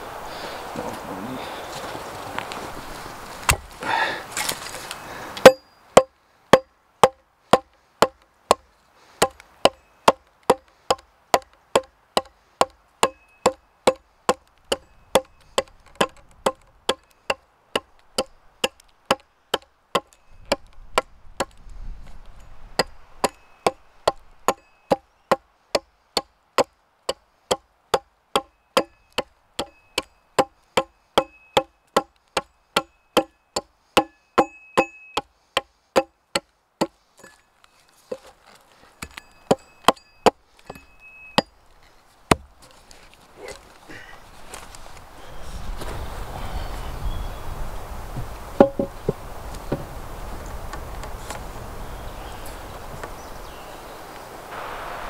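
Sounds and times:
rustle: 0.0 - 55.0
axe chopping wood: 3.4 - 4.5, 5.4 - 8.6, 9.2 - 21.6, 22.8 - 37.4, 42.3 - 42.5, 48.6 - 49.2.

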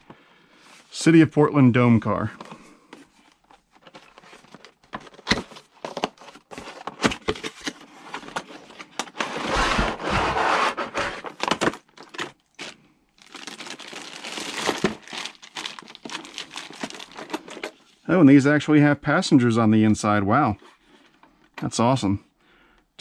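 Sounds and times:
cardboard tray sliding and rustling: 7.9 - 11.6
plastic wrap crinkling: 11.2 - 17.8.

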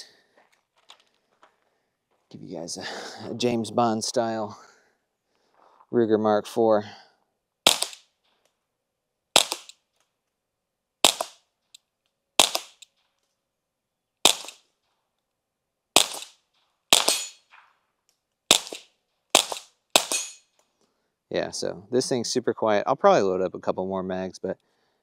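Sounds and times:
suppressed pistol shots: 7.6 - 8.1, 9.3 - 9.8, 11.0 - 11.4, 12.4 - 12.9, 14.2 - 14.6, 16.0 - 17.7, 18.5 - 20.4.

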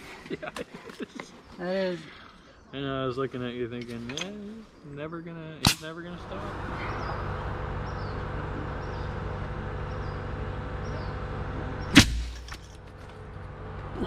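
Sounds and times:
sharp loud crack and thud: 5.6 - 5.9, 11.9 - 12.6.

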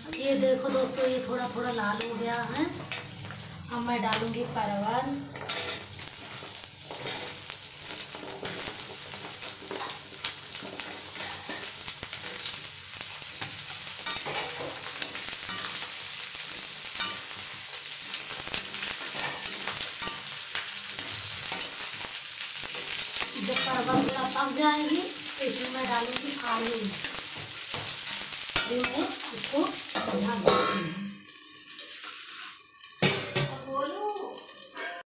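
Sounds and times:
vegetables sizzling in hot oil: 0.0 - 35.0
metal spatula scraping a pan: 5.3 - 12.5, 14.0 - 16.0, 16.9 - 24.6, 25.3 - 30.8, 31.9 - 32.7.

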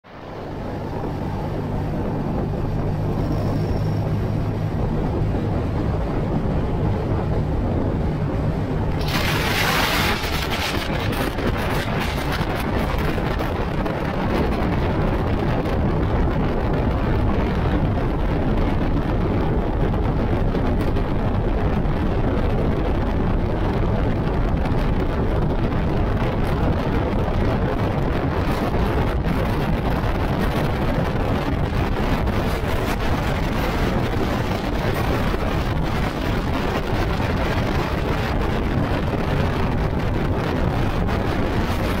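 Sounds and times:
wind rushing over microphone: 0.0 - 42.0.

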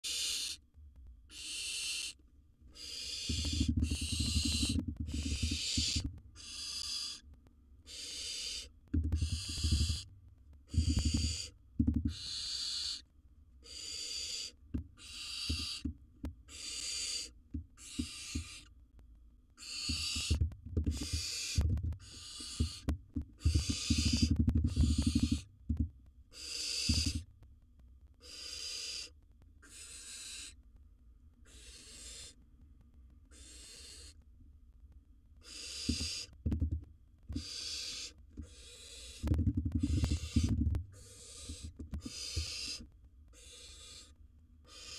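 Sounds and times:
owls rasping hiss calls: 0.0 - 0.6, 1.3 - 7.2, 7.8 - 10.1, 10.7 - 13.0, 13.6 - 18.7, 19.6 - 25.5, 26.3 - 27.3, 28.2 - 30.6, 31.4 - 32.4, 33.3 - 34.2, 35.4 - 36.4, 37.3 - 44.9
birds thumping in wooden box: 3.2 - 6.2, 8.9 - 10.1, 10.7 - 12.3, 19.9 - 25.9, 26.8 - 27.3, 35.8 - 37.5, 39.2 - 42.8.

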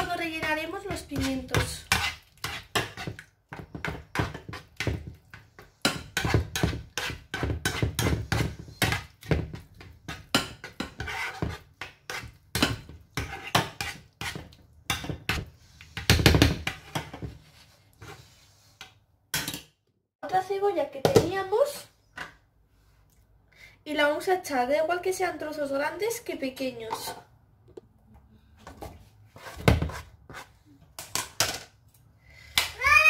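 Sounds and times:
spatula scraping a frying pan: 0.3 - 18.9, 29.3 - 30.6.

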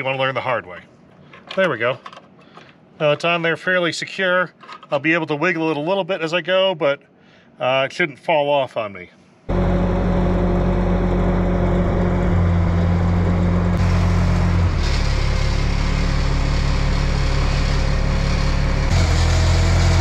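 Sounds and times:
forklift engine running: 9.5 - 20.0.

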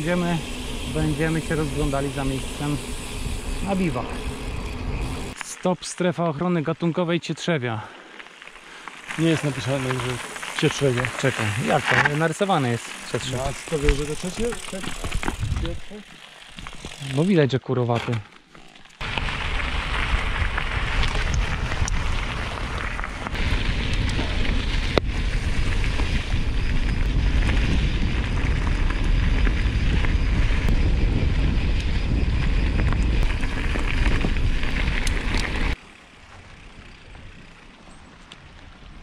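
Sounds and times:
wind buffeting microphone: 0.0 - 5.4, 13.1 - 16.0, 19.0 - 35.8
bike clicks and rattles: 0.0 - 5.5, 8.1 - 38.7
bike tyre noise: 0.0 - 17.5, 18.1 - 39.0.

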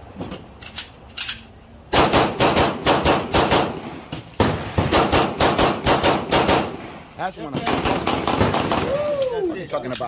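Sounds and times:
rapid pistol shots: 1.9 - 7.0, 7.6 - 8.9.

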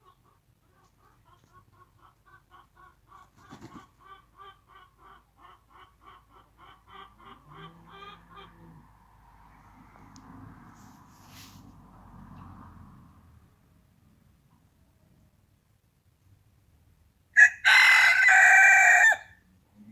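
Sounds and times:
rooster clucking: 0.0 - 9.8.

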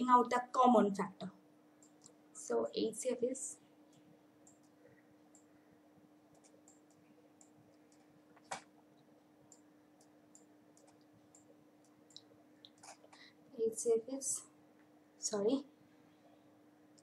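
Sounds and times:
faint low hum: 0.0 - 17.0
small clicks: 9.5 - 13.2.

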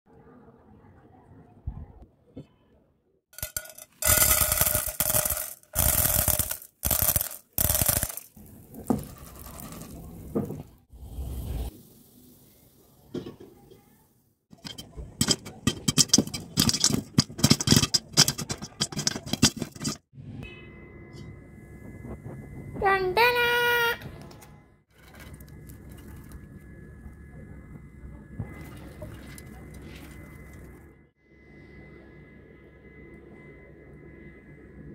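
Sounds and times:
popcorn popping under lid: 3.4 - 10.7, 14.6 - 20.0
corn kernels sizzling in oil: 3.4 - 13.2.

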